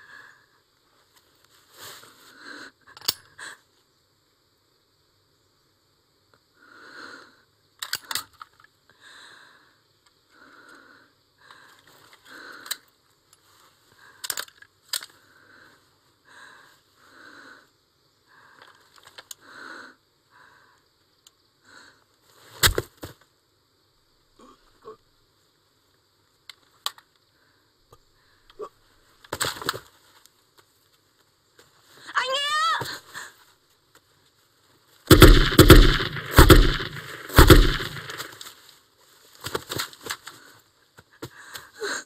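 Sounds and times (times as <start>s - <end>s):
woman's ragged heavy breathing: 0.0s - 0.7s, 8.9s - 12.9s, 15.1s - 21.0s, 40.3s - 42.0s
sharp clicks: 35.1s - 38.4s.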